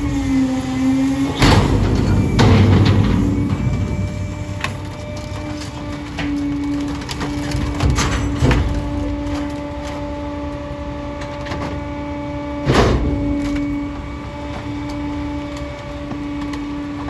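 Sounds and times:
garbage truck hydraulic packer: 0.0s - 17.0s
items cracking and crunching: 3.3s - 11.5s, 13.2s - 17.0s.

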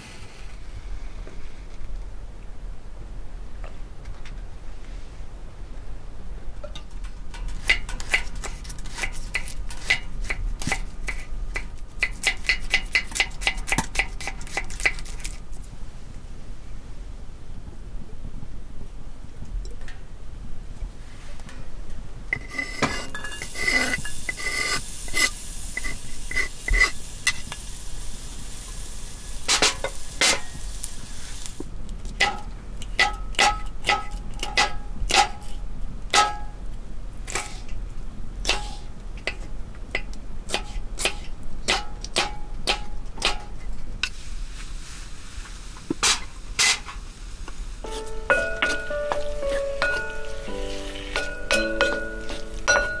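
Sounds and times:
hiss: 0.0s - 1.7s, 22.5s - 31.7s, 38.5s - 39.0s, 44.0s - 48.6s
metal utensils clinking on cookware: 22.4s - 27.4s, 47.9s - 53.0s.

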